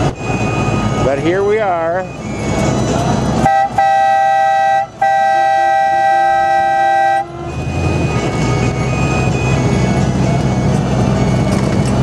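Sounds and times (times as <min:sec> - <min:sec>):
engine and road noise: 0:00.0 - 0:12.0
vehicle horn: 0:03.4 - 0:10.0.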